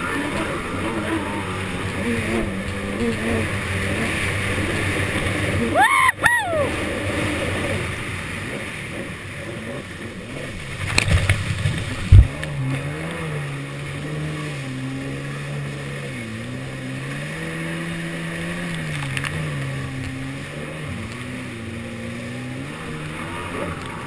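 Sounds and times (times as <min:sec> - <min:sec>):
jet ski engine hum: 0:00.0 - 0:24.0
water rushing and splashing: 0:00.0 - 0:24.0.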